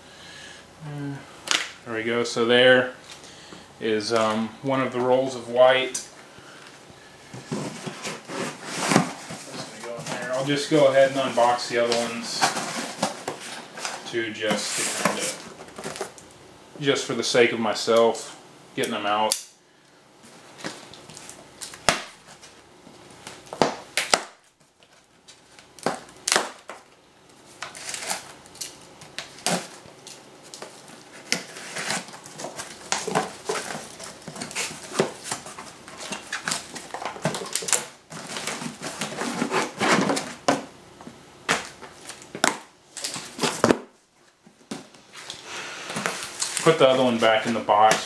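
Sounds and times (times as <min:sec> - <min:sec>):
cardboard rustling: 0:07.3 - 0:16.2, 0:29.1 - 0:40.7, 0:41.5 - 0:48.0.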